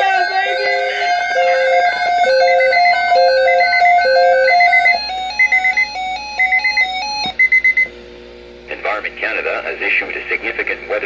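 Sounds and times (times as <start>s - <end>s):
weather radio alert melody: 0.0s - 5.6s.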